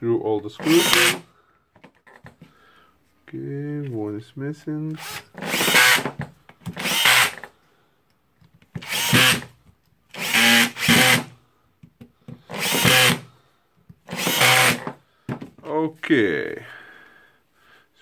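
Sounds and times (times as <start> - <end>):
cordless drill driving screws: 0.6 - 1.2, 5.0 - 7.5, 8.8 - 9.5, 10.1 - 11.4, 12.5 - 13.3, 14.0 - 15.0.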